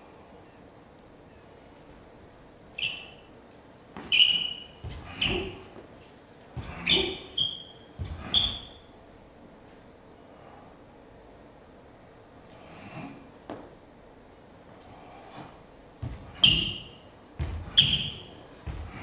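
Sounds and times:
sneakers squeaking on floor: 0:02.8 - 0:03.3, 0:04.0 - 0:06.0, 0:06.6 - 0:09.0, 0:16.0 - 0:19.0
feet stamping on floor: 0:04.8 - 0:08.7, 0:16.0 - 0:19.0.

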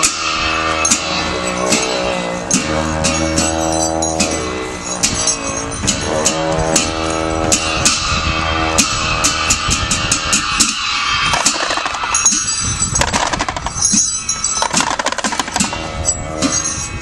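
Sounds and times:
low horn drone: 0:00.0 - 0:11.4, 0:15.7 - 0:16.8
sharp percussion strikes: 0:00.0 - 0:17.0.

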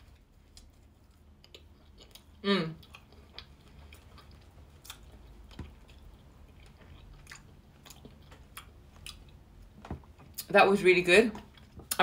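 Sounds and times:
faint close-up chewing: 0:00.0 - 0:10.4.

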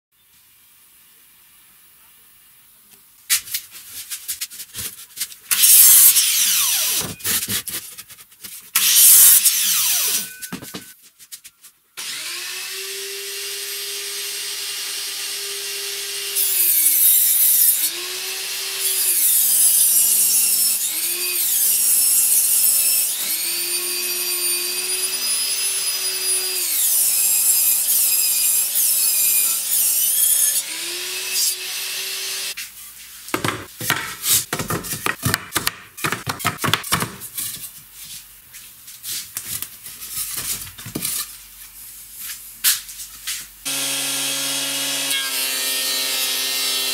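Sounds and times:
table saw ripping wood: 0:05.5 - 0:08.0, 0:08.7 - 0:10.9, 0:12.0 - 0:32.6, 0:33.4 - 0:37.6, 0:43.7 - 0:46.9
wooden beams knocking: 0:33.4 - 0:37.2.

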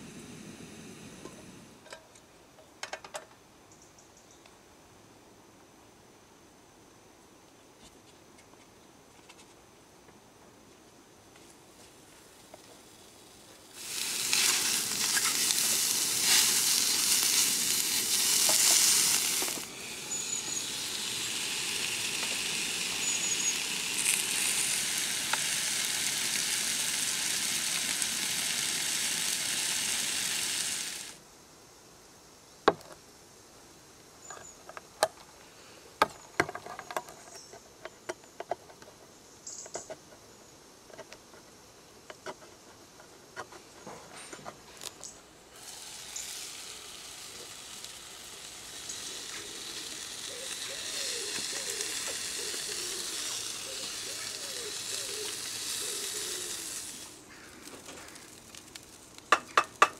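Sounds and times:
sausages sizzling in pan: 0:13.7 - 0:31.2, 0:45.6 - 0:59.9.

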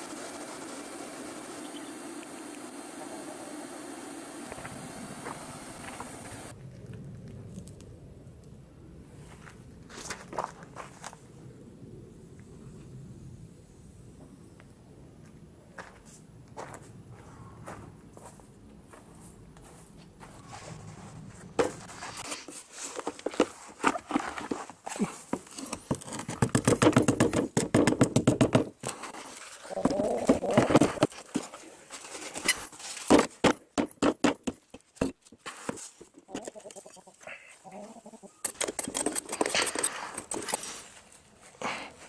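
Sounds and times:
hands digging and scraping sand: 0:20.3 - 0:26.4, 0:35.2 - 0:37.5, 0:38.4 - 0:42.0.

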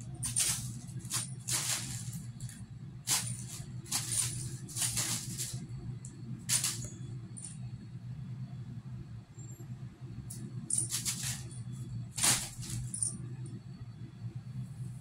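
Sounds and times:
steady low hum: 0:00.0 - 0:15.0
plastic bag rustling and crinkling: 0:00.1 - 0:02.3, 0:03.1 - 0:05.6, 0:12.2 - 0:13.0.

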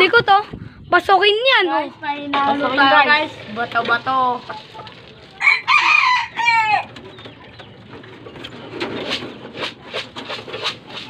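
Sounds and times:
rooster crowing: 0:05.4 - 0:07.0.

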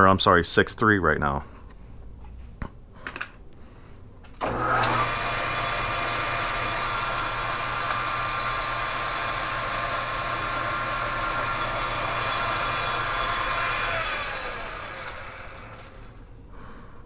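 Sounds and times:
metal lathe running: 0:04.4 - 0:16.2.

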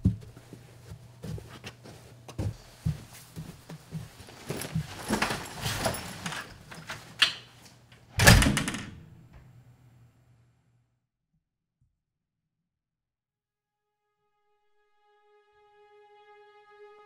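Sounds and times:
footsteps on carpet: 0:00.0 - 0:06.2
interior door slamming: 0:08.1 - 0:09.4.

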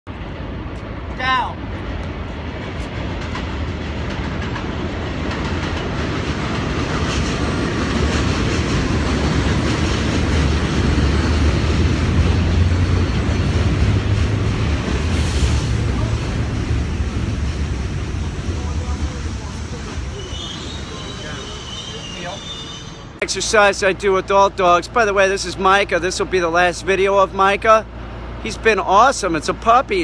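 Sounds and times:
heavy vehicle rumbling past: 0:06.1 - 0:20.2.

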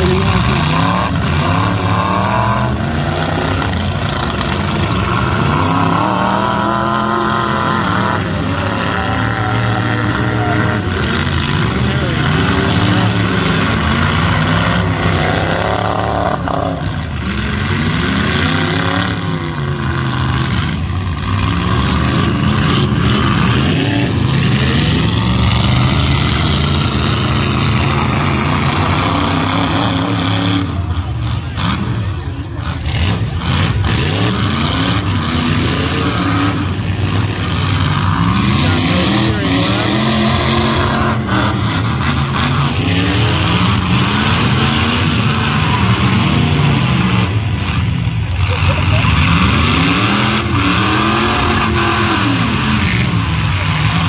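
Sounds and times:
truck engines revving: 0:00.0 - 0:54.0.

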